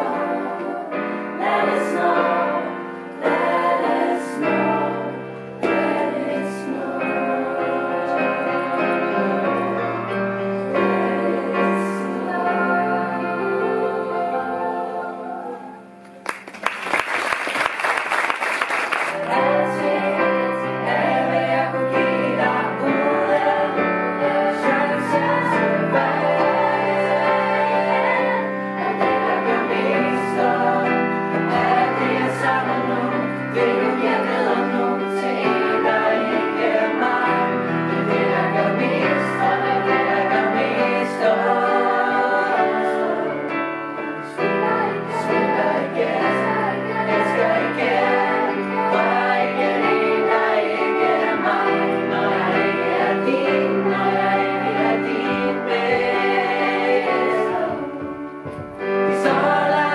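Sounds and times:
youth choir singing: 0.0 - 16.0, 18.9 - 59.9
digital piano: 0.0 - 16.3, 19.1 - 59.9.

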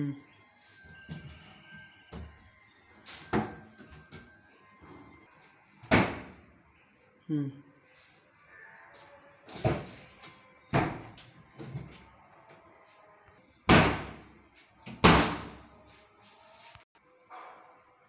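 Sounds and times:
cabinet doors knocking shut: 5.9 - 6.4, 10.7 - 11.1.

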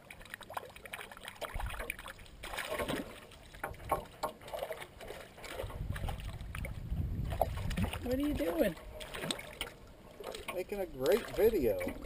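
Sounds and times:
water splashing: 0.0 - 12.0.

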